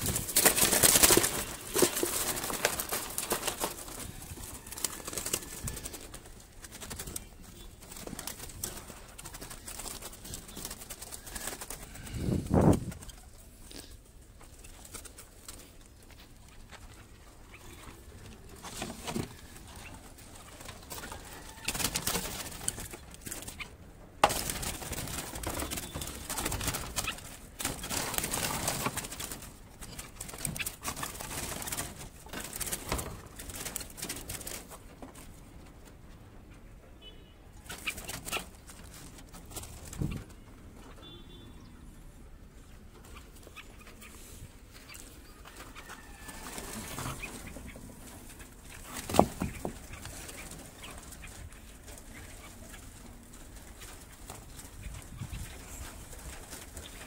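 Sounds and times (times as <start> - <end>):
rustling handling noise: 0.0 - 36.2
birds calling: 0.0 - 57.0.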